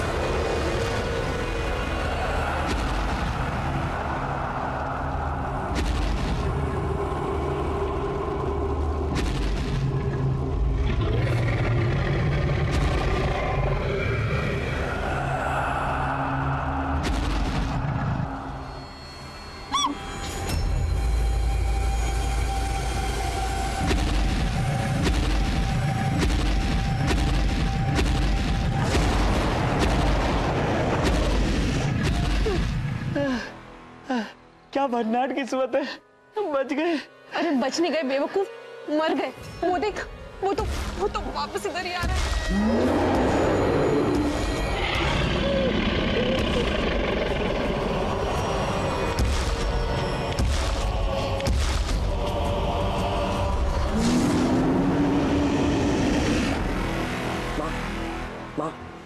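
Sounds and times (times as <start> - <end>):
sharp cracks: 23.8 - 32.9.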